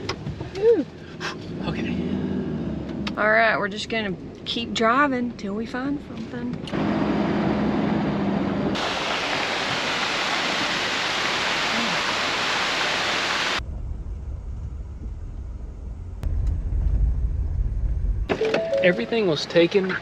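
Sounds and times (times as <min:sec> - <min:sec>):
waterfall rushing: 0:08.8 - 0:13.6
low rumble: 0:13.6 - 0:18.3.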